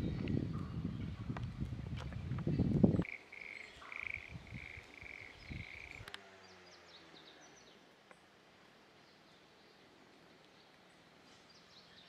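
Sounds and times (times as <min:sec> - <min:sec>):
wind buffeting microphone: 0:00.0 - 0:03.1, 0:04.0 - 0:06.1
frog croaking: 0:03.0 - 0:06.1
bird twittering faintly: 0:03.0 - 0:08.3.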